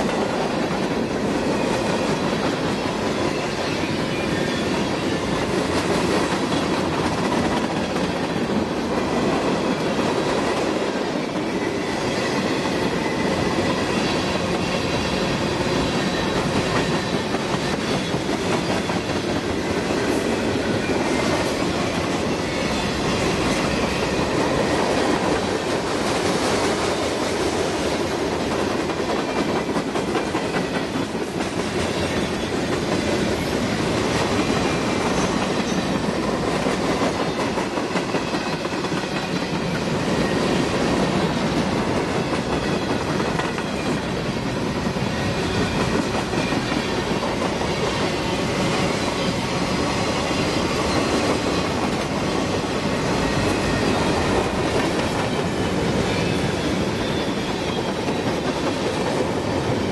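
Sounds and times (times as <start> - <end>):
freight train wheels rumbling on rail: 0.0 - 59.9.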